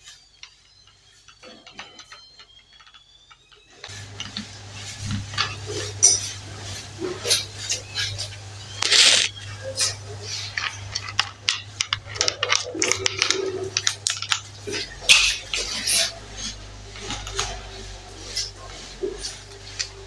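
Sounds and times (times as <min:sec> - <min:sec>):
steady low hum: 0:00.0 - 0:20.0
tool handling clicks and clatter: 0:08.8 - 0:17.6.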